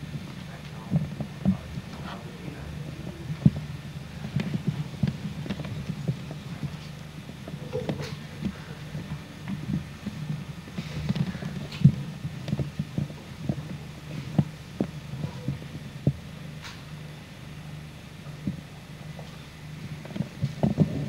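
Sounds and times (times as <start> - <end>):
low electrical hum: 0.0 - 21.0
faint clicks and knocks: 3.0 - 16.9, 18.3 - 21.0.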